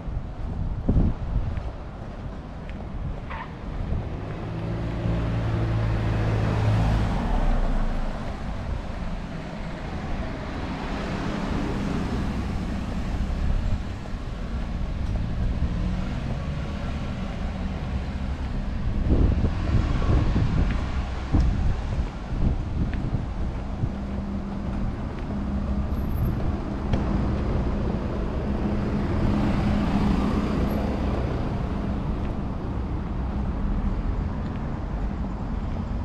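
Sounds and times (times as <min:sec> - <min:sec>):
wind buffeting microphone: 0:00.0 - 0:16.4, 0:17.6 - 0:36.0
traffic rumble: 0:00.0 - 0:36.0
car engine passing: 0:04.0 - 0:22.0.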